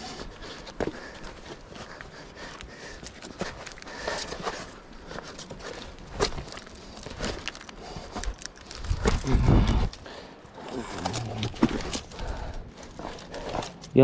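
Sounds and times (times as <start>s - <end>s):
footsteps on mountain path: 0.0s - 14.0s
gear jangling: 2.8s - 14.0s.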